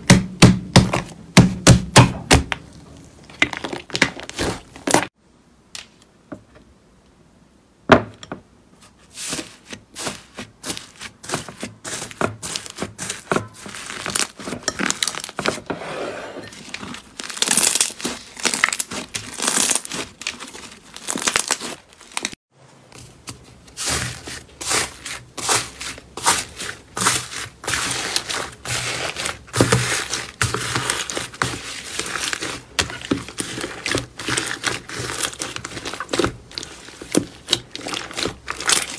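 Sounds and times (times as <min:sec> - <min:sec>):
slime squelching: 0:00.8 - 0:05.1, 0:09.1 - 0:15.5, 0:16.5 - 0:22.3, 0:23.1 - 0:38.9
slime crust crackling: 0:09.2 - 0:15.5, 0:16.6 - 0:22.4, 0:23.6 - 0:38.9.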